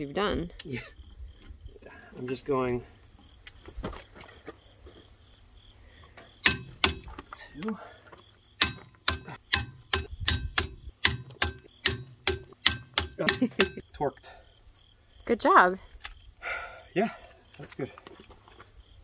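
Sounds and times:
torque wrench ratchet clicks: 6.4 - 7.1, 8.6 - 13.8.

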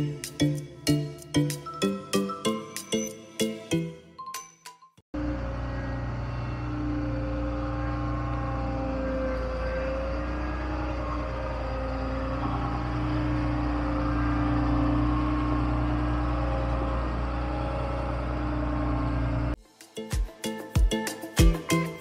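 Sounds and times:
vehicle engine running: 5.2 - 19.6.

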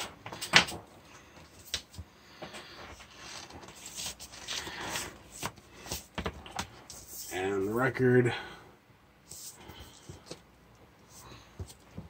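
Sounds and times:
paper rustling and crinkling: 0.4 - 7.3.

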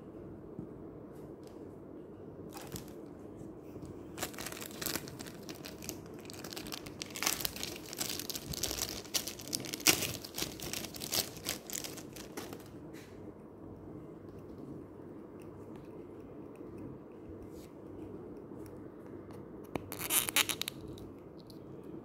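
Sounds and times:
plastic wrapping crinkling: 2.5 - 3.1, 4.1 - 12.8, 19.8 - 20.8.

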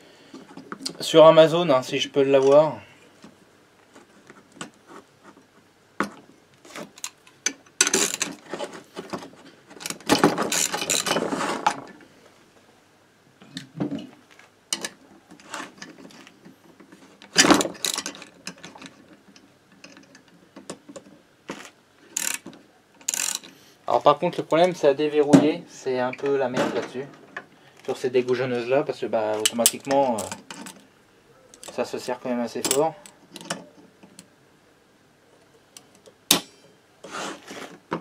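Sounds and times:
ratchet wrench clicking: 22.2 - 22.4, 23.0 - 23.5.

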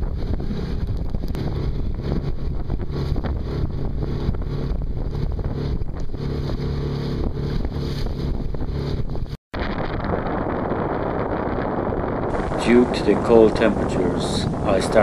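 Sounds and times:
choppy water: 0.0 - 15.0
gusty wind on microphone: 0.0 - 15.0
steady low drone: 9.6 - 15.0.

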